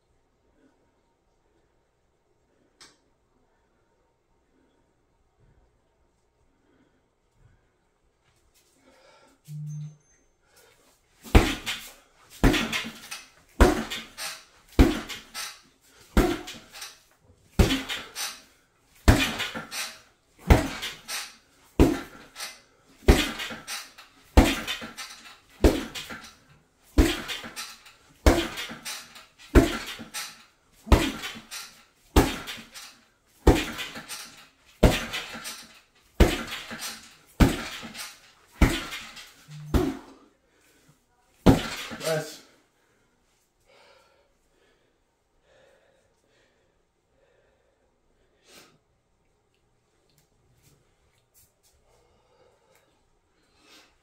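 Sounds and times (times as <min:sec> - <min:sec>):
punches thudding on heavy bag: 0:11.2 - 0:15.4, 0:16.1 - 0:16.7, 0:17.5 - 0:18.2, 0:19.0 - 0:21.2, 0:21.8 - 0:22.4, 0:23.0 - 0:26.3, 0:26.9 - 0:32.8, 0:33.4 - 0:40.2, 0:41.4 - 0:42.2.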